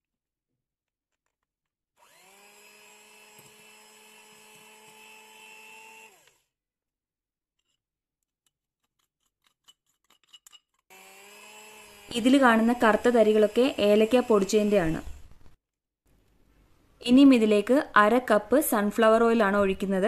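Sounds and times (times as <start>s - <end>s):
electric hand mixer motor: 2.0s - 6.6s, 10.9s - 15.3s.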